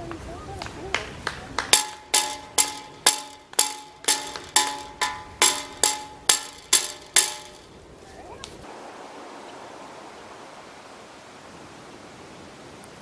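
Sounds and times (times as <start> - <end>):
metal struck with a stick: 1.7 - 7.7.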